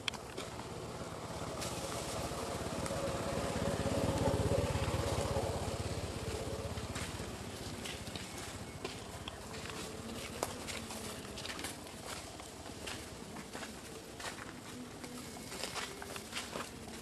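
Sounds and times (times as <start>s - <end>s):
vehicle engine passing by: 0.4s - 11.4s.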